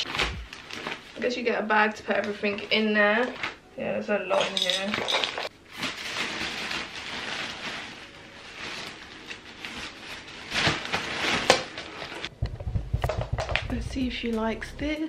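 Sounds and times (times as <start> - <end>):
fabric tunnel rustling: 5.7 - 12.4.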